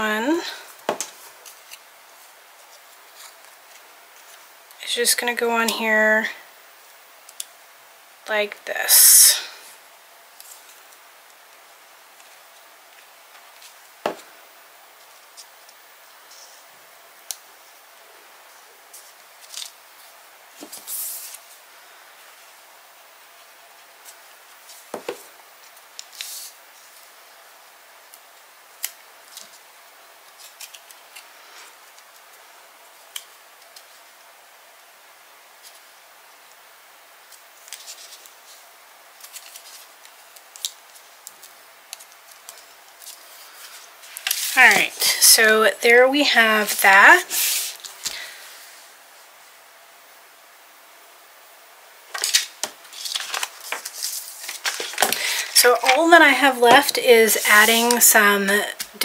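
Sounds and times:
paper pieces clicking and rustling: 30.3s - 31.2s, 52.1s - 56.1s
cardstock rustling: 39.2s - 45.0s, 52.1s - 58.1s.

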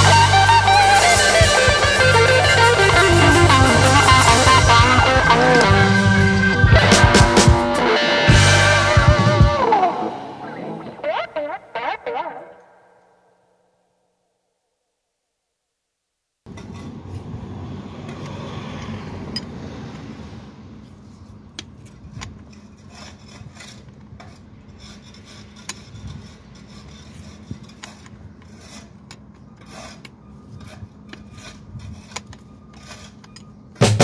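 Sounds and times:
tool rubbing and scraping: 21.0s - 33.5s.

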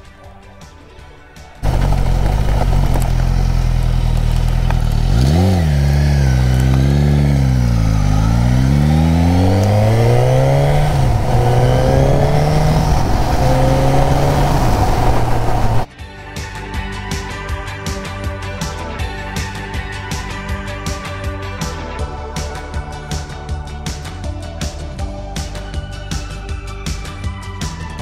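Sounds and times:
motorcycle engine accelerating: 1.6s - 15.9s.

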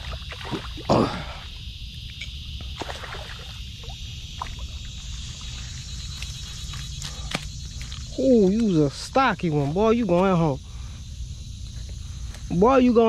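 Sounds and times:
fish splashing in water: 2.8s - 5.4s
steady low rumble: 3.4s - 13.0s.

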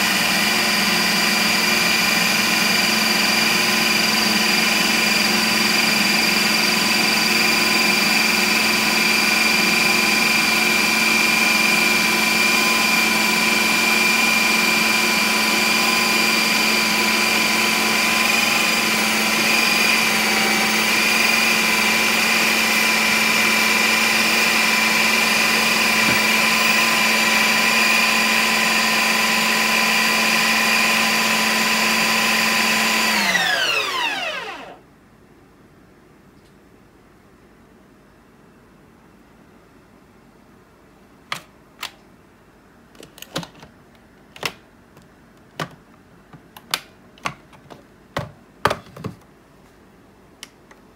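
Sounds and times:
ice cream maker motor whine: 0.0s - 34.8s.

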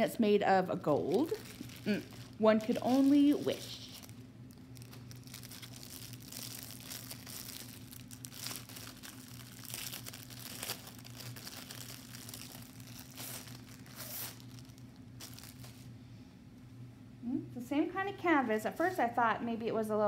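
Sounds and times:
faint low hum: 0.0s - 20.0s
plastic sleeve crinkling: 0.7s - 15.9s.

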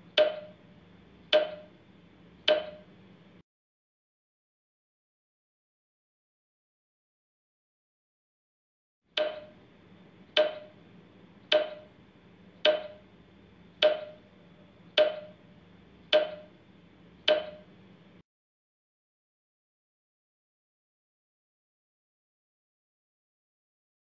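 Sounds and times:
sharp timer ticks: 0.0s - 0.6s, 1.3s - 1.8s, 2.4s - 2.9s, 9.2s - 9.6s, 10.3s - 10.8s, 11.5s - 12.0s, 12.6s - 13.1s, 13.8s - 14.3s, 14.9s - 15.4s, 16.1s - 16.6s, 17.2s - 17.7s.

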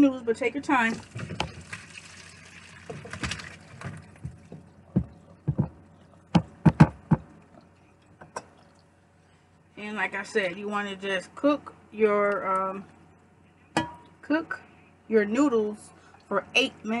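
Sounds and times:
water pouring into sink: 0.9s - 4.2s
pot knocking against sink: 13.8s - 14.0s.

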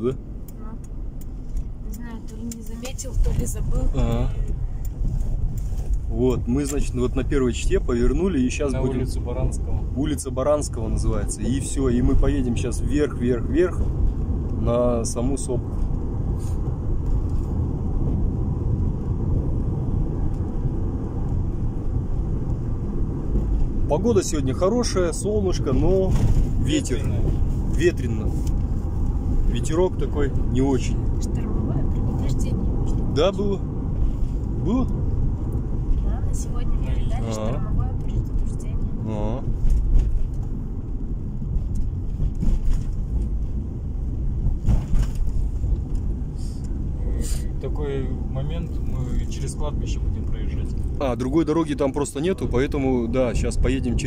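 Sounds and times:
car engine and tyres rumbling: 0.0s - 54.0s.

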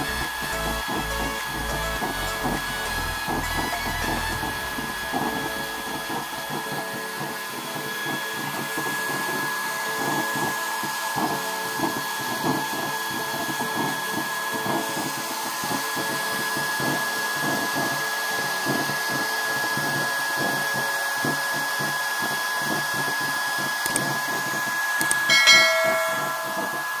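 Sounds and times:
chiming sound effect: 0.0s - 7.1s, 25.0s - 27.0s
electric blower with high whine: 0.0s - 27.0s.

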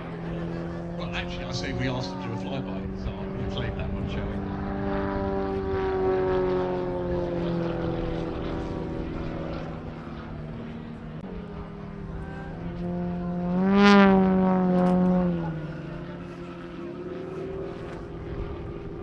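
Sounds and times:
propeller aircraft engine droning: 0.0s - 19.0s.

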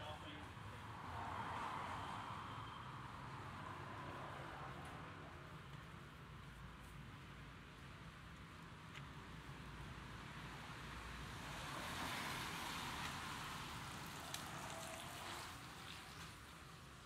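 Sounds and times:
car tyres hissing on wet road: 10.6s - 17.0s.

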